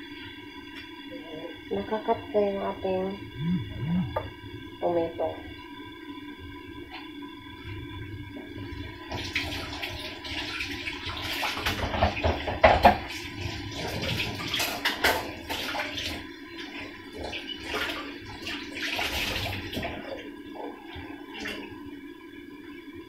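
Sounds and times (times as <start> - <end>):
knocks and clatter of dishes: 11.7 - 13.1.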